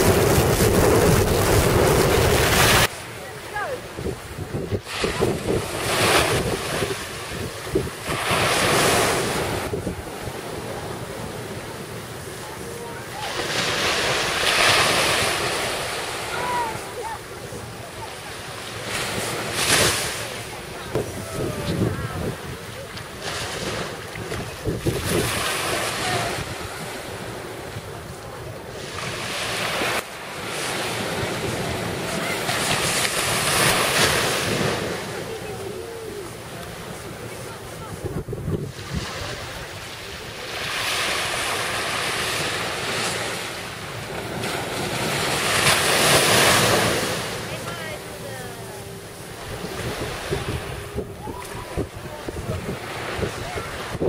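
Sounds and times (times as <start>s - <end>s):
wind buffeting microphone: 0.0s - 2.9s, 3.9s - 11.3s, 20.7s - 27.0s, 37.2s - 39.9s, 49.0s - 54.0s
small waves breaking on shore: 0.0s - 54.0s.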